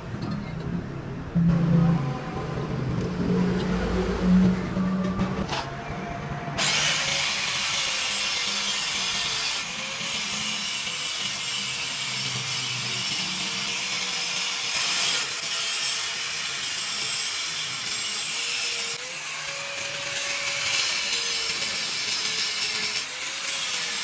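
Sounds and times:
power tool grinding metal: 0:06.6 - 0:24.0.

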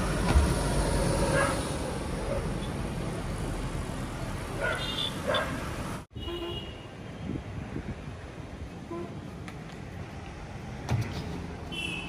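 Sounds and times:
passing street traffic: 0:00.0 - 0:12.0
dog barking: 0:01.3 - 0:01.6, 0:04.6 - 0:05.6
wind rumble on microphone: 0:07.1 - 0:08.7.

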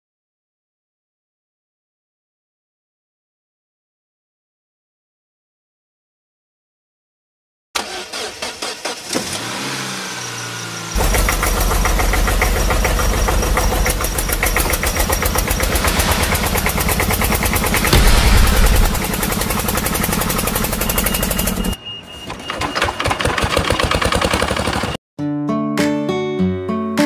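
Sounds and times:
tractor engine chugging: 0:11.0 - 0:21.8, 0:22.8 - 0:25.0.

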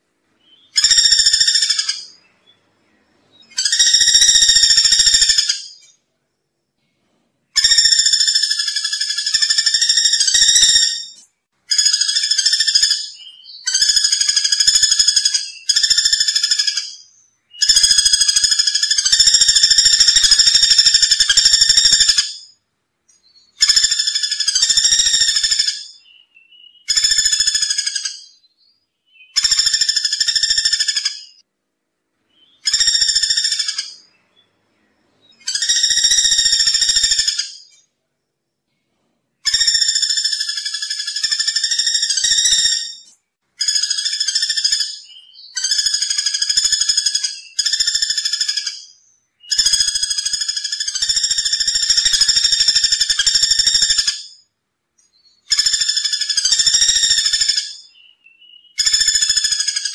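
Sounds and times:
woodpecker calling: 0:00.4 - 0:02.6, 0:03.3 - 0:06.0, 0:07.6 - 0:22.6, 0:23.3 - 0:28.5, 0:29.1 - 0:31.4, 0:32.3 - 0:34.5, 0:35.2 - 0:37.9, 0:39.4 - 0:59.9.

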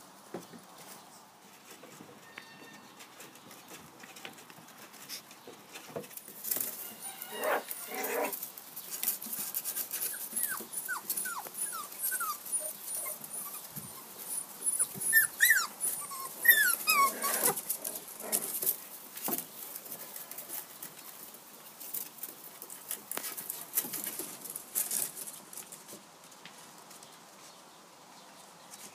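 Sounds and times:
paws scratching on wooden steps: 0:00.4 - 0:27.2
puppies whimpering: 0:10.0 - 0:17.6.

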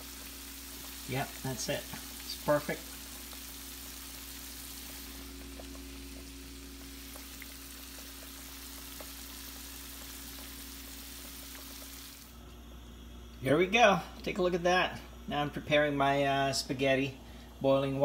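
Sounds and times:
food sizzling in a pan: 0:00.0 - 0:12.3
low hum: 0:00.1 - 0:13.4.

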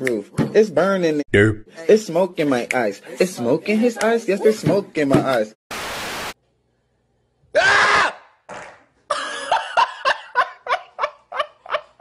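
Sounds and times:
loud vocal outburst: 0:07.6 - 0:08.3
people laughing: 0:09.1 - 0:12.0.

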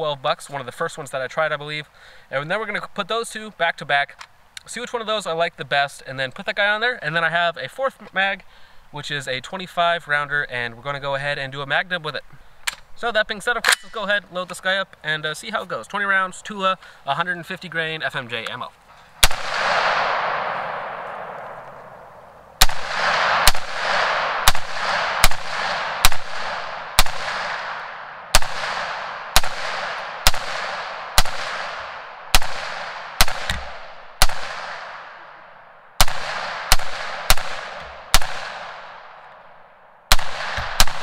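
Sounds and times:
rifle shots with echo: 0:19.2 - 0:39.4, 0:40.1 - 0:41.0.

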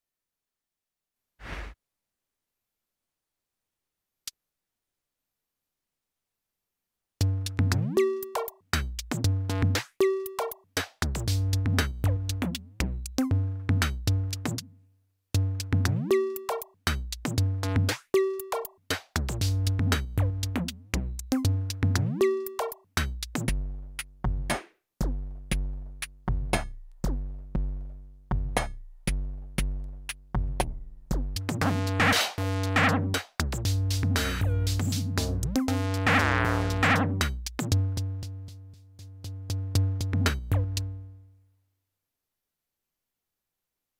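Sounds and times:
drum machine electronic beat: 0:07.2 - 0:14.6, 0:15.4 - 0:41.0
deep stepped bass notes: 0:33.7 - 0:38.5.

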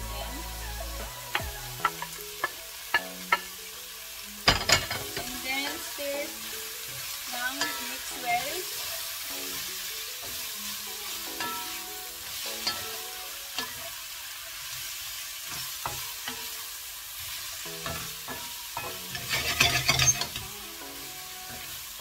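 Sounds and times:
vegetables sizzling in a wok: 0:00.0 - 0:22.0
spatula scraping a pan: 0:06.8 - 0:20.6.

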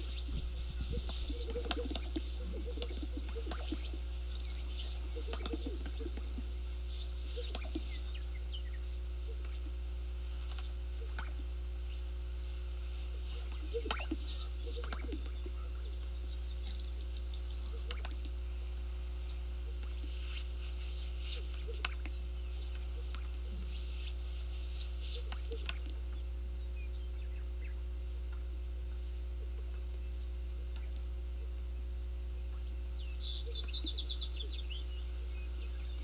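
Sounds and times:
sound system hum: 0:00.0 - 0:36.0
bird clicks and chirps: 0:04.8 - 0:06.2, 0:07.4 - 0:08.0, 0:13.7 - 0:15.4, 0:16.6 - 0:18.4, 0:21.5 - 0:23.3.

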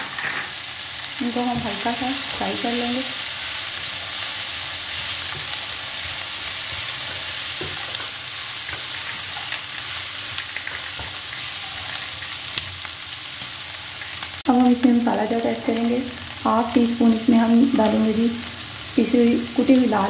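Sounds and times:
vegetables sizzling in hot oil: 0:00.0 - 0:20.0
spatula scraping and tapping pan: 0:05.3 - 0:09.6, 0:10.3 - 0:12.7.

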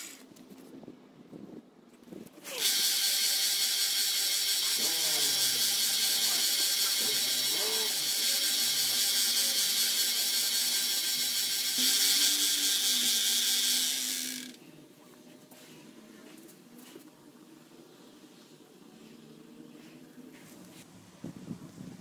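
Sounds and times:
belt sander grinding steel blade: 0:02.4 - 0:14.6.

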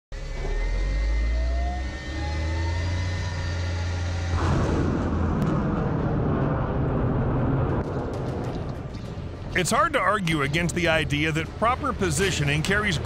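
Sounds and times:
deep rumble with rising whine: 0:00.1 - 0:09.6
rough roar of rockets launching: 0:01.8 - 0:08.9.

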